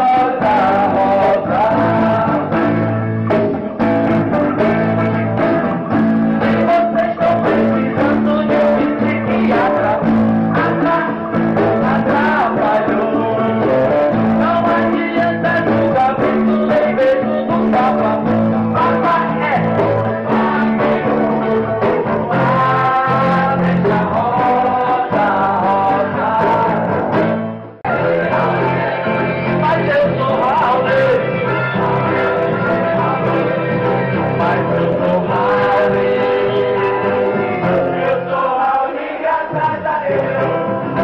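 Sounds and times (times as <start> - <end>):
live rock band playing: 0.0 - 41.0
people singing: 0.0 - 41.0.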